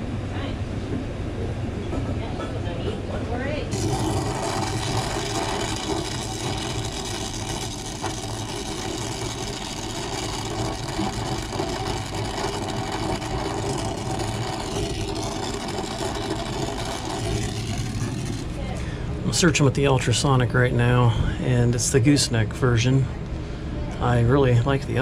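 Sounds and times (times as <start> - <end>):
torch flame hissing: 3.7 - 18.8.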